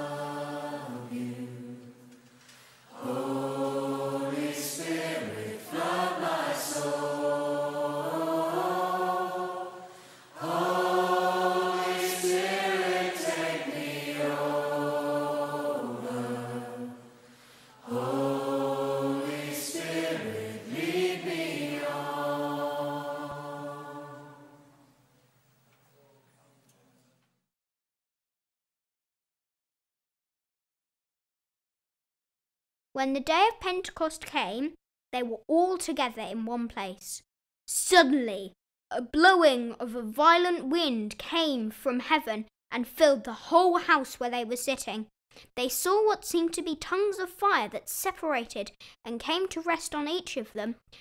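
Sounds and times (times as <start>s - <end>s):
voices singing worship song: 0.0s - 24.8s
sustained backing music: 3.1s - 9.8s.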